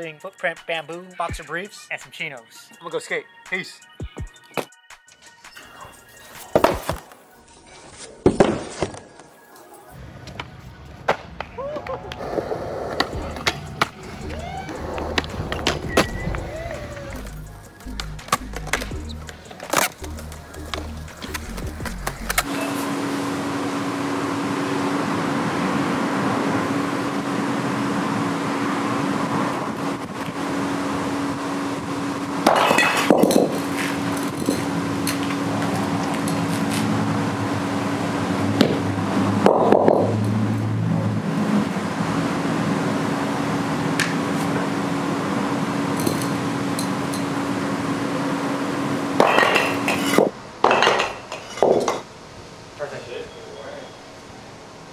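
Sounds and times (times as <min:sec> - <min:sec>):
steady mechanical hum: 0:09.9 - 0:54.9
bowling ball hitting concrete blocks: 0:32.4 - 0:33.8, 0:39.4 - 0:40.2, 0:49.2 - 0:52.1.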